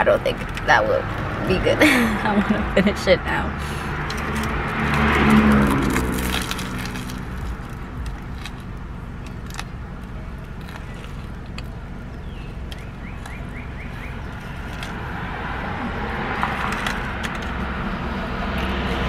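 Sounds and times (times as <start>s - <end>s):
low rumble: 0.0s - 19.0s
crust crackling: 3.7s - 15.5s
chewing crusty bread: 4.0s - 15.1s.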